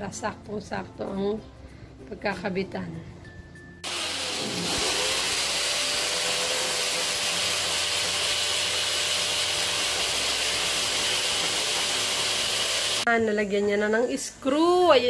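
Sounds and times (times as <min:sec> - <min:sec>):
electric drill drilling into wall: 0:03.8 - 0:13.1.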